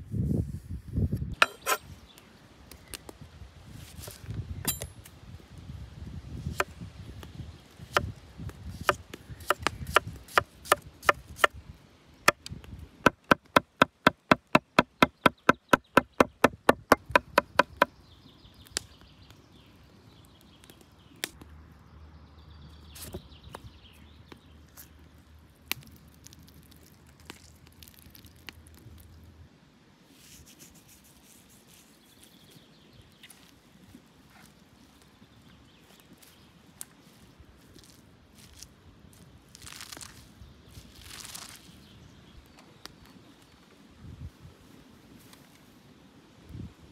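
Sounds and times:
knife chopping on wooden board: 1.4s - 1.8s, 13.1s - 17.9s.

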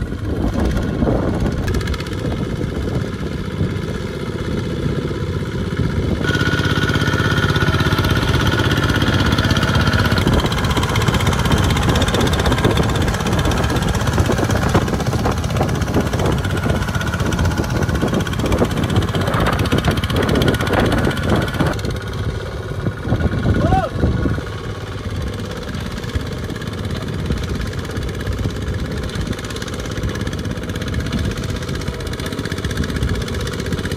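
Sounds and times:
diesel tractor engine chugging: 0.0s - 33.9s.

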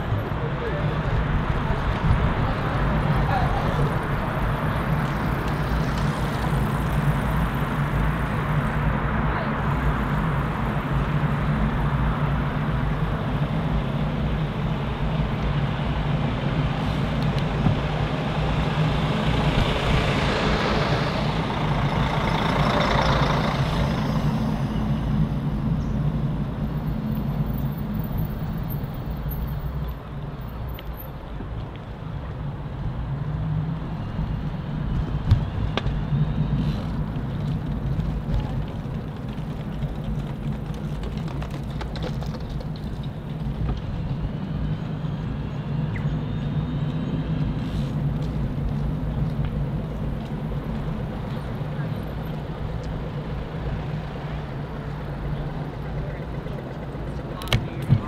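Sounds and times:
road traffic: 0.0s - 58.0s
heavy vehicle engine running: 15.8s - 25.7s
vehicle passing: 17.8s - 25.6s.

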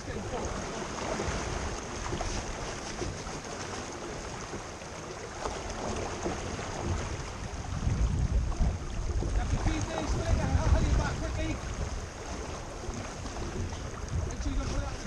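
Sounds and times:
water rushing past hull: 0.0s - 15.0s
wind buffeting microphone: 5.8s - 15.0s.

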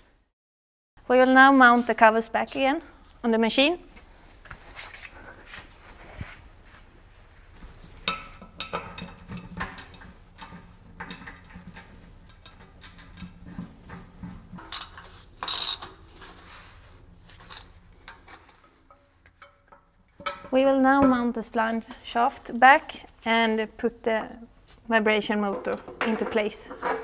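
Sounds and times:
metal clinks and knocks: 8.0s - 16.6s, 17.4s - 21.4s, 25.5s - 27.0s.

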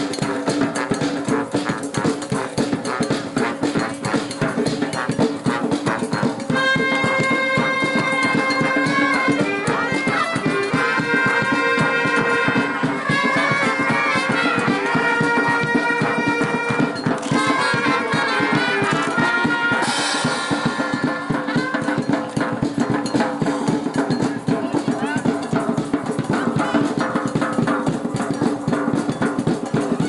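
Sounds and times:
steady drum beat: 0.0s - 30.0s
brass holding notes: 0.2s - 22.1s.

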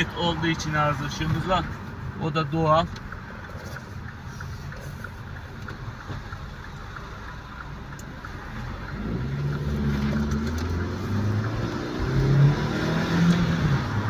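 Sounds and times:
car engine accelerating: 0.0s - 14.0s
road rumble: 0.0s - 14.0s.

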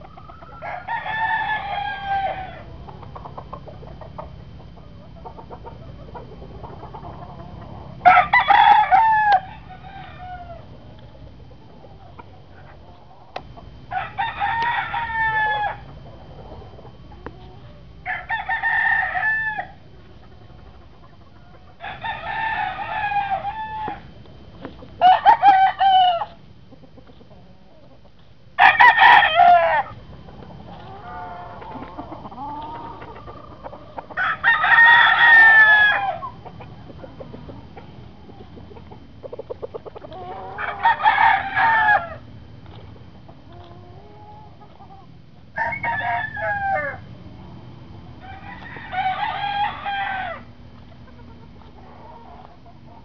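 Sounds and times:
rooster crowing: 0.2s - 2.7s, 8.0s - 10.7s, 13.3s - 15.9s, 18.0s - 19.8s, 21.8s - 24.2s, 25.0s - 26.4s, 28.6s - 30.0s, 30.8s - 36.4s, 40.1s - 42.3s, 45.5s - 47.1s, 48.2s - 50.6s
soft clucking: 30.0s - 34.2s, 36.2s - 40.6s.

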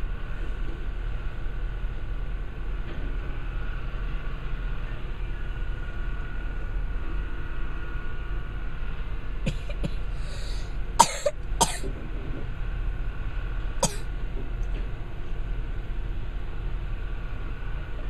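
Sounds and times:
machine engine droning: 0.0s - 18.0s
person coughing: 9.5s - 10.0s, 11.0s - 11.9s, 13.8s - 14.1s
person clearing throat: 11.0s - 11.9s, 13.8s - 14.1s.

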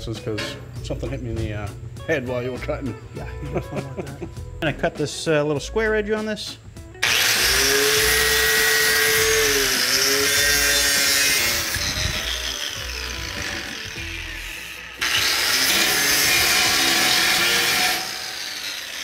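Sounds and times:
angle grinder cutting steel: 7.0s - 19.0s.

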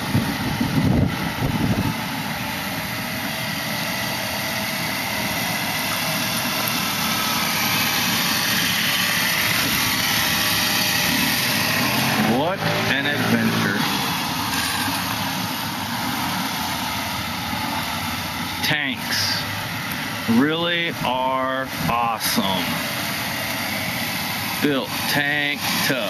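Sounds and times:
scooter engine running: 0.0s - 26.0s.

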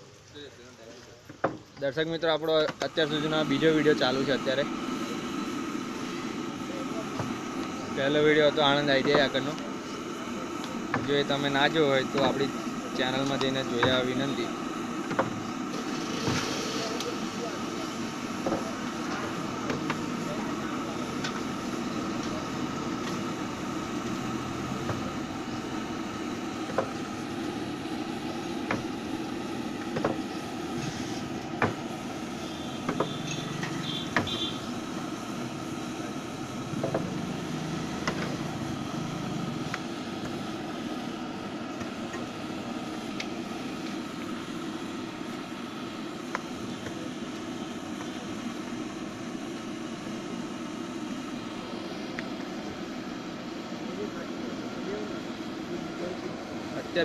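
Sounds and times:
gas burner noise: 0.0s - 57.0s
food sizzling in oil: 2.9s - 42.1s.

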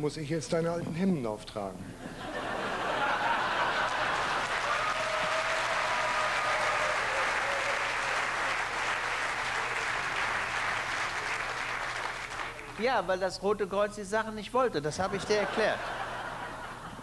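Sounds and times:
audience laughter: 2.0s - 4.8s, 15.1s - 17.0s
audience applauding: 2.8s - 12.9s.

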